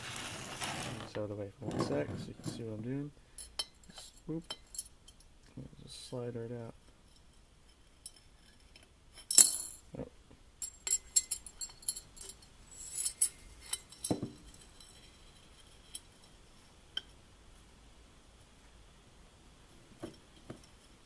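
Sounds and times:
metal clinking against glass jar: 0:03.4 - 0:05.2, 0:10.6 - 0:16.3.

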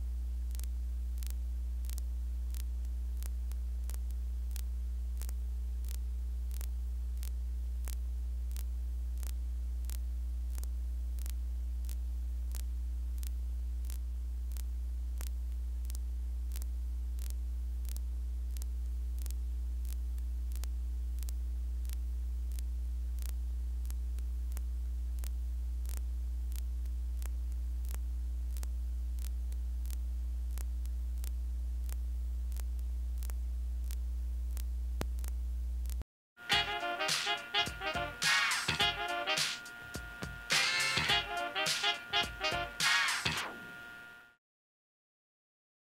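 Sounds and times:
low electrical hum: 0:00.0 - 0:44.4
evenly spaced ticks: 0:00.5 - 0:36.0.

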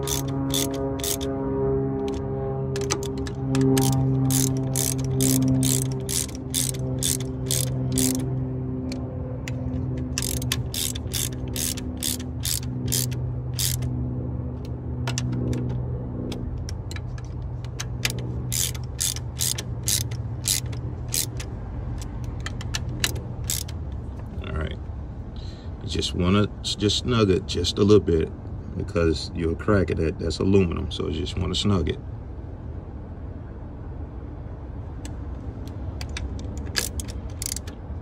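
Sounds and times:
hand ratchet clicking: 0:00.0 - 0:01.3, 0:02.8 - 0:08.3, 0:09.5 - 0:13.9, 0:15.1 - 0:23.8, 0:36.0 - 0:37.8
steady low hum: 0:00.0 - 0:38.0.

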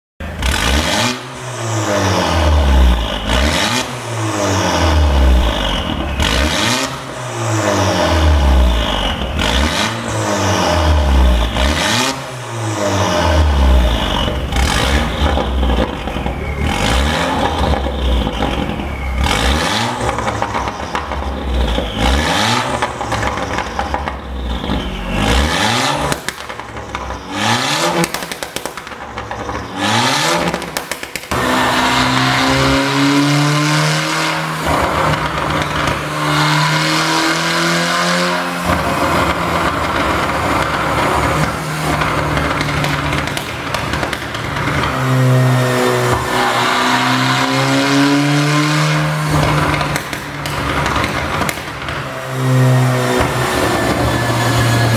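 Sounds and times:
car engine revving: 0:00.2 - 0:54.9
exhaust pops and crackles: 0:13.8 - 0:31.6, 0:34.5 - 0:36.5, 0:38.6 - 0:46.3, 0:49.1 - 0:54.9.

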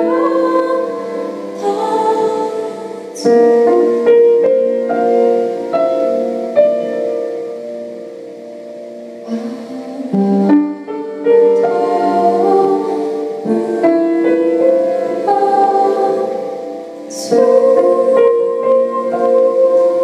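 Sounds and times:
woman singing long held notes: 0:00.0 - 0:04.2, 0:09.2 - 0:20.0
solo piano: 0:00.0 - 0:20.0.

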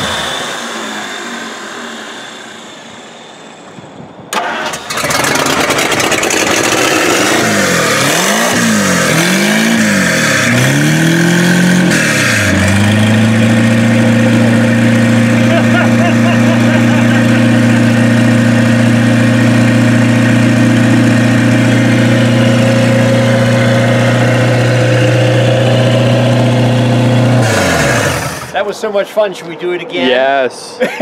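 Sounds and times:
car engine starting and revving: 0:04.3 - 0:28.6.

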